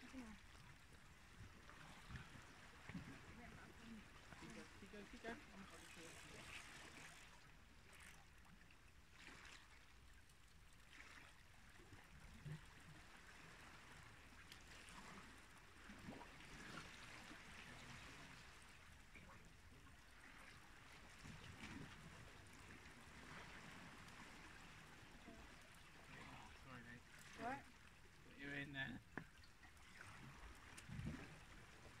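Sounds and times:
low steady rumble: 0.0 - 6.8
sea water washing at shoreline: 0.0 - 32.0.

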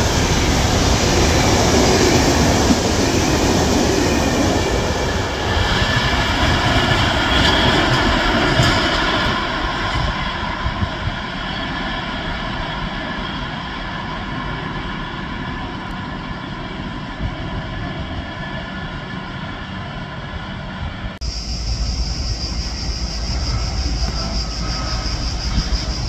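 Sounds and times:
train wagons rumbling on rails: 0.0 - 26.0
high whine: 20.8 - 26.0.

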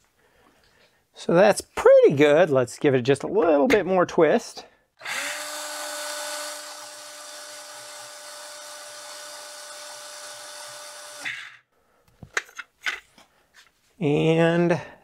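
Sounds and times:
cordless drill whining: 5.0 - 11.7.

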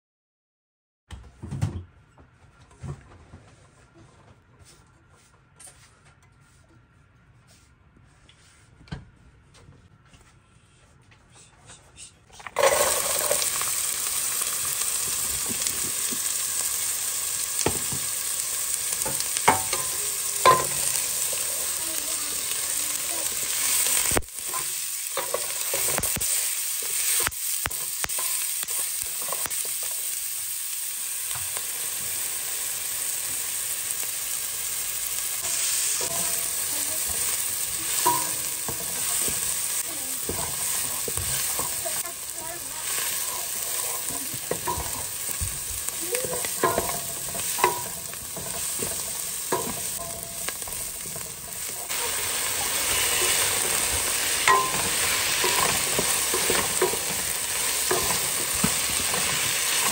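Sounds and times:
onions sizzling in hot oil: 12.6 - 59.9
spatula tapping a pot: 19.0 - 21.0, 37.9 - 39.6, 42.9 - 45.6, 46.3 - 51.8, 53.2 - 59.9
spatula scraping a pot: 35.4 - 59.9.

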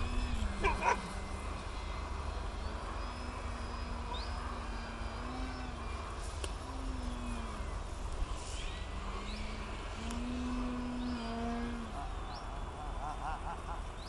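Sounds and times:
loud wavering cries: 0.0 - 7.9
birds chirping faintly: 0.0 - 14.0.

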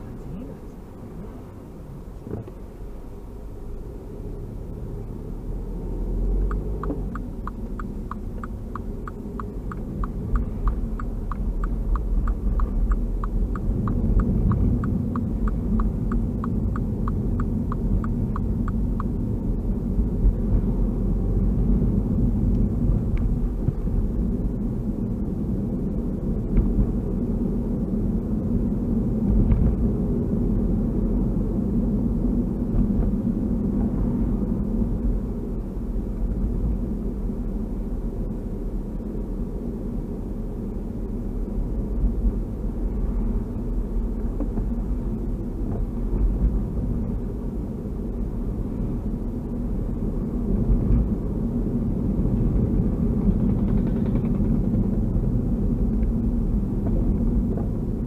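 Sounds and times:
car interior road rumble: 0.0 - 58.0
turn signal ticking: 6.2 - 20.4.

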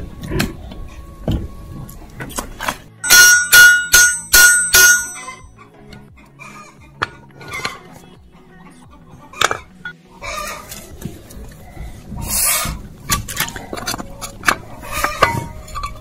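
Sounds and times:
hammer striking metal: 3.0 - 5.5.

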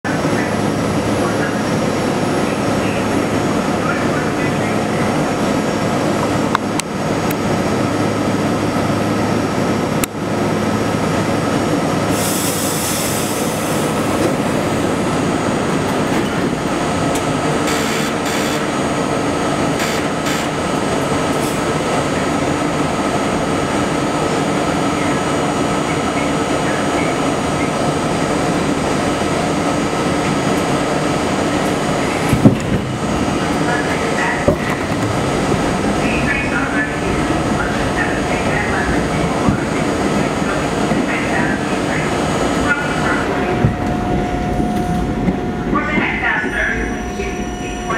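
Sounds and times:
subway car equipment drone: 0.0 - 47.9
air hiss: 12.1 - 14.0.

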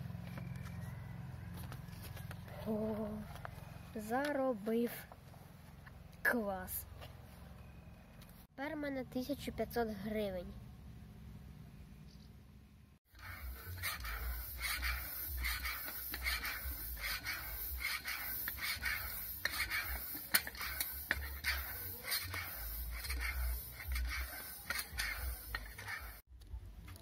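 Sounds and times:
hand pump hissing air: 13.1 - 26.3.

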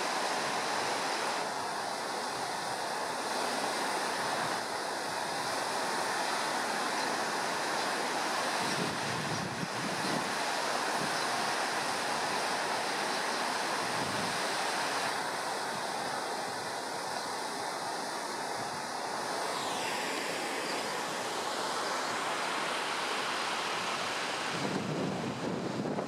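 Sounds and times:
river rushing in flood: 0.0 - 26.0
wind buffeting microphone: 8.6 - 10.3, 24.5 - 26.0.

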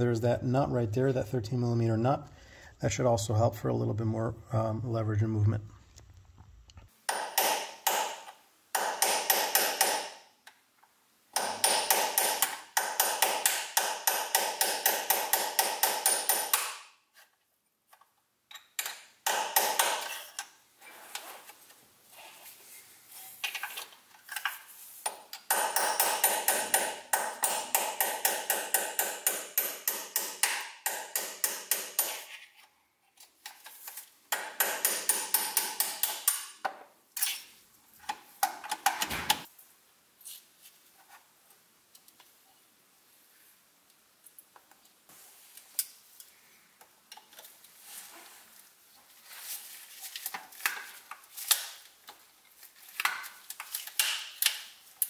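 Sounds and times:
hammer tapping metal punch: 25.5 - 32.2.

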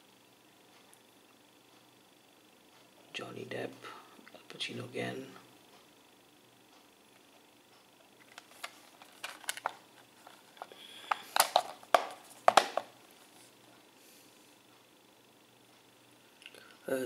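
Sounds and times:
plastic disc case clicking: 8.2 - 12.9.

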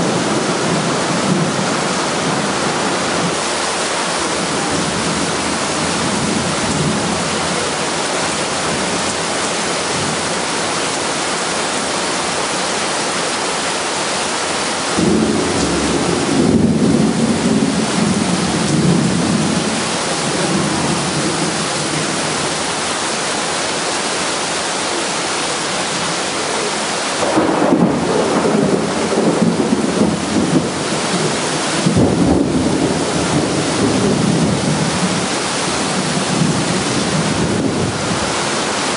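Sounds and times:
heavy rain on concrete: 0.0 - 38.9
thunder rumbling: 15.0 - 22.4, 27.2 - 38.3.

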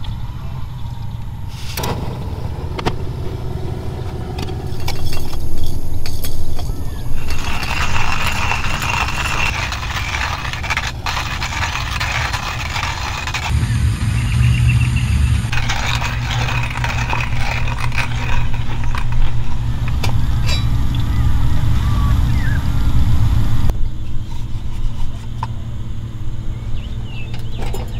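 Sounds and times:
steady low rumble: 0.0 - 24.3
hand coffee grinder grinding: 6.3 - 13.5, 15.5 - 20.7.

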